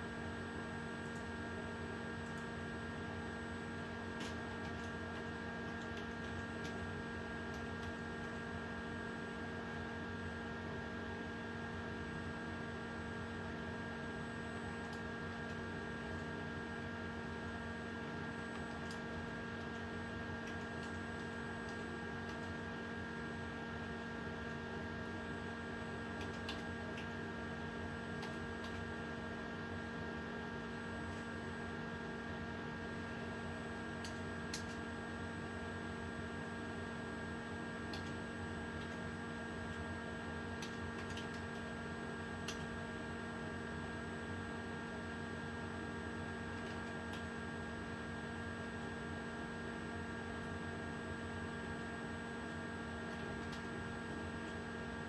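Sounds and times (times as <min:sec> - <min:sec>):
steady electrical hum: 0:00.0 - 0:55.0
computer keyboard typing: 0:02.2 - 0:02.5, 0:04.1 - 0:08.4, 0:18.5 - 0:22.7, 0:26.0 - 0:27.2, 0:28.1 - 0:28.9, 0:34.0 - 0:34.8, 0:37.8 - 0:38.2, 0:38.8 - 0:39.0, 0:40.5 - 0:41.7, 0:42.4 - 0:42.8, 0:46.5 - 0:47.3, 0:53.1 - 0:54.6.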